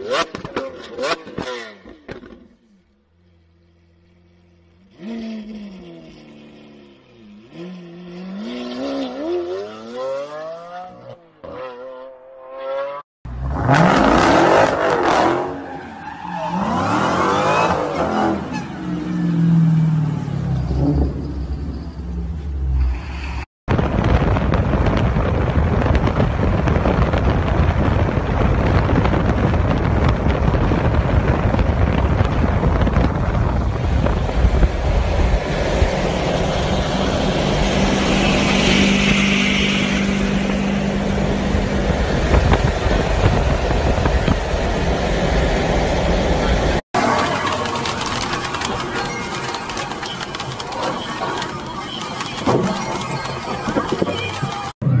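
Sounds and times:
engine and wind rush: 0:16.5 - 0:55.0.

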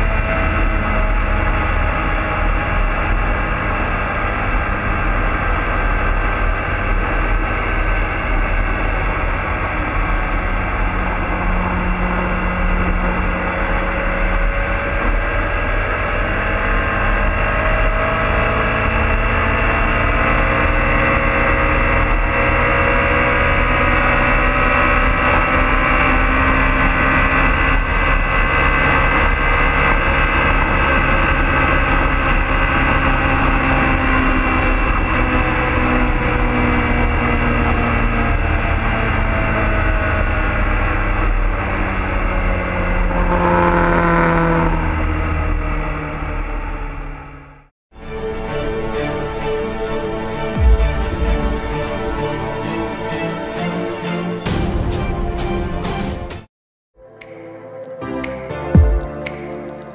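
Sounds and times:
motorcycle engine accelerating: 0:00.0 - 0:47.7.

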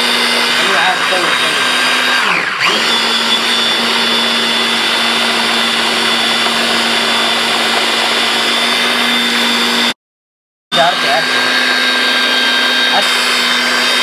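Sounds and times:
blender motor whining: 0:00.0 - 0:10.0, 0:10.7 - 0:14.0.

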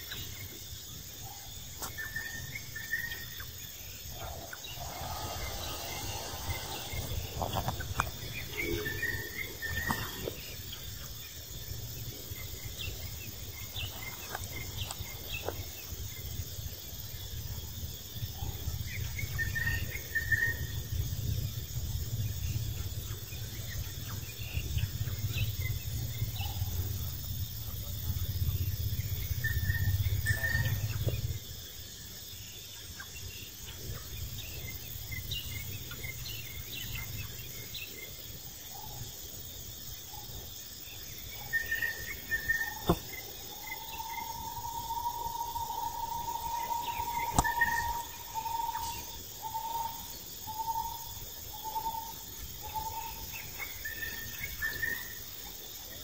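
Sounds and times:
insects chirping: 0:00.0 - 0:56.0
low rumble: 0:04.1 - 0:09.7.

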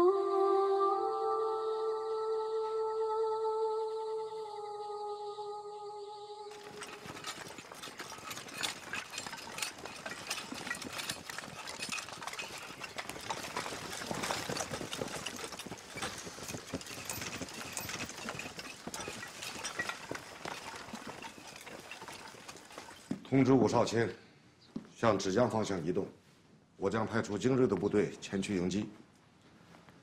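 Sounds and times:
footsteps through undergrowth: 0:06.5 - 0:23.2
rattling kit: 0:06.5 - 0:23.2
rustling brush: 0:06.5 - 0:23.3.

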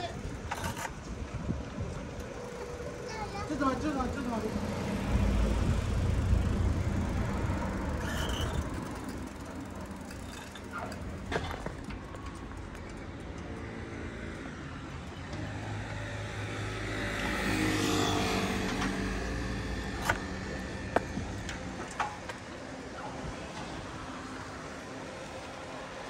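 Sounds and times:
car passing by: 0:15.4 - 0:20.9.

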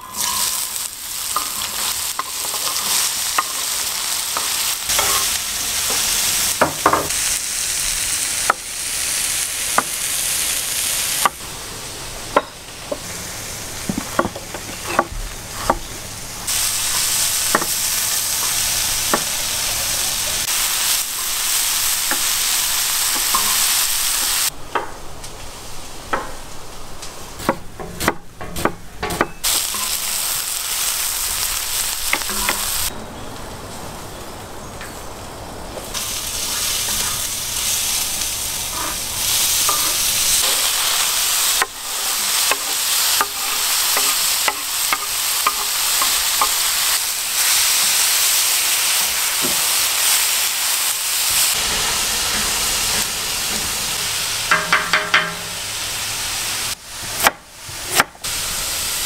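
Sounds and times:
wooden spatula scraping metal pan: 0:00.0 - 0:06.0, 0:13.9 - 0:18.6, 0:38.6 - 0:47.6
onions sizzling in a pan: 0:00.0 - 0:33.0, 0:33.9 - 0:59.0.

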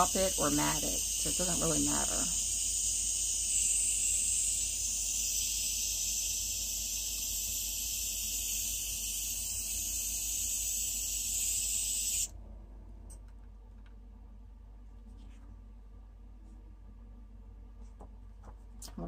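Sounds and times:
airbrush spraying hiss: 0:00.0 - 0:12.3.

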